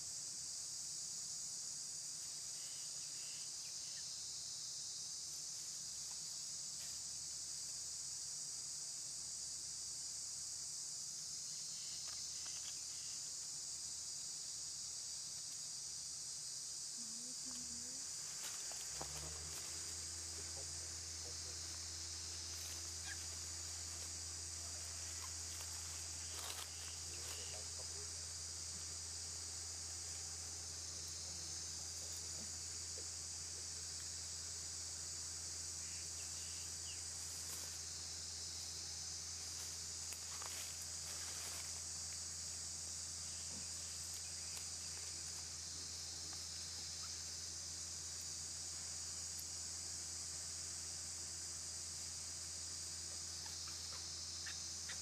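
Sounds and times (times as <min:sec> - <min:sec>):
insects trilling: 0:00.0 - 0:55.0
faint rustles: 0:17.2 - 0:29.0, 0:39.4 - 0:42.4.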